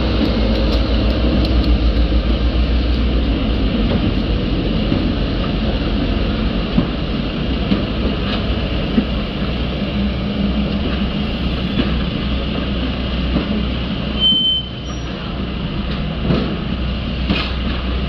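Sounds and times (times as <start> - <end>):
diesel locomotive engine rumbling: 0.0 - 18.0
train wheels rolling on rails: 0.0 - 18.0.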